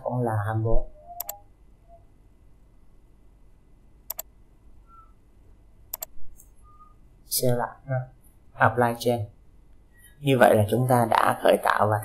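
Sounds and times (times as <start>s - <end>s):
computer mouse clicks: 1.2s - 1.4s, 4.1s - 4.3s, 5.9s - 6.6s.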